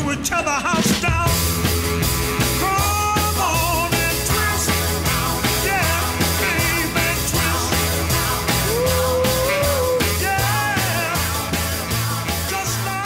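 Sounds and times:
rock music: 0.0 - 13.0
pulsing bass beat: 1.0 - 13.0
person singing: 2.6 - 11.6, 12.3 - 13.0.

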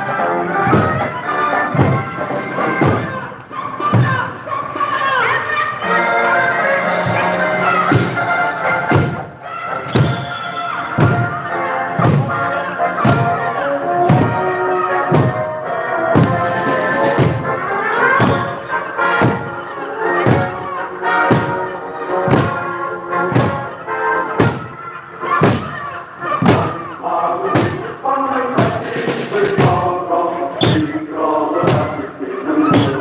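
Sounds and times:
song playing: 0.0 - 33.0
barrel drums struck together: 14.1 - 14.4, 22.3 - 22.6.

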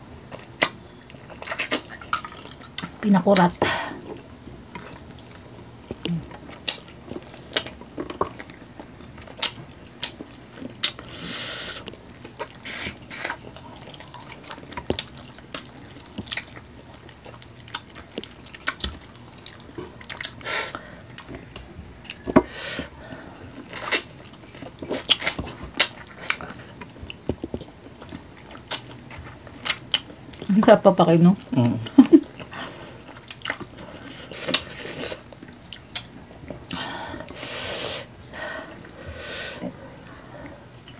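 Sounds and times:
wet chewing: 0.2 - 39.0
lip smacking: 0.3 - 2.9.

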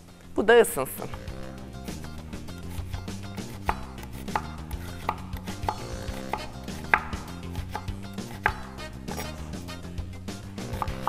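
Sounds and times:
knife chopping on wooden board: 2.6 - 9.4, 10.6 - 11.0.

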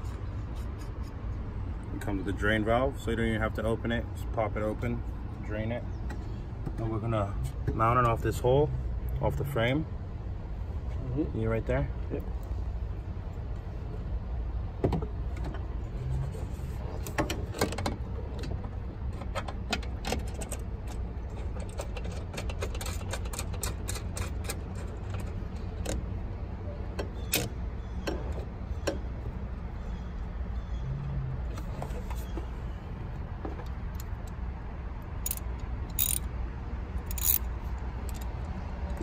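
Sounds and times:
metallic clicks and rattles of bolt: 17.1 - 26.0, 35.2 - 36.3, 37.0 - 39.0.

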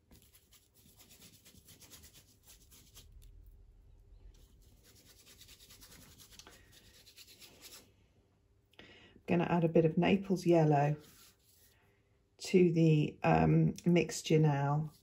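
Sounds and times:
paintbrush scrubbing on paper: 0.0 - 3.6, 4.4 - 7.9, 10.8 - 11.8, 14.8 - 15.0.

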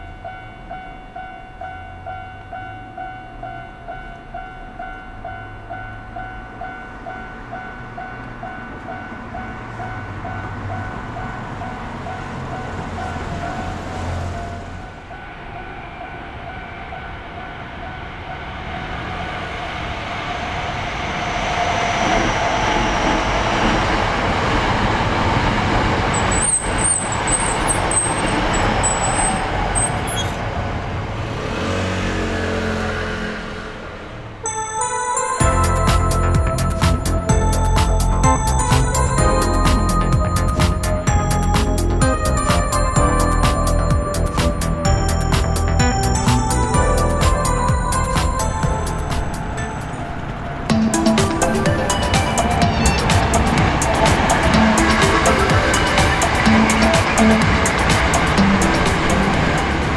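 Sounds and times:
level-crossing bell ringing: 0.0 - 19.3, 34.4 - 59.9
electric train rumbling: 0.0 - 59.9
high wheel squeal: 26.0 - 30.5, 35.4 - 59.9.

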